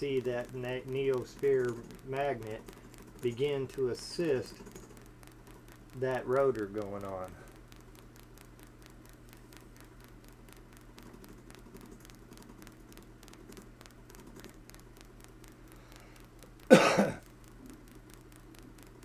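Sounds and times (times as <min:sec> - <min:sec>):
low steady hum: 0:00.0 - 0:19.0
rotary switch contacts clicking: 0:00.0 - 0:19.0
person coughing: 0:16.7 - 0:17.2.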